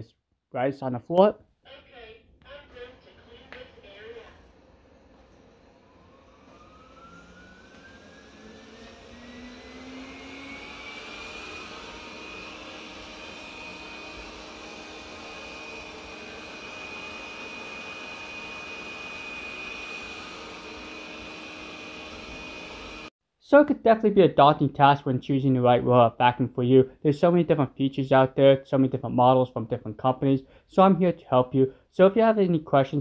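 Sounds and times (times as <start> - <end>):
robot vacuum whine: 3.0 - 23.1.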